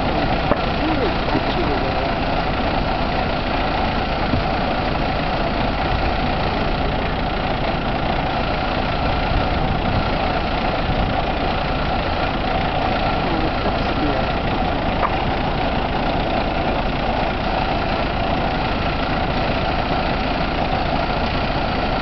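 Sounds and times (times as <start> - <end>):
fire roaring: 0.0 - 22.0.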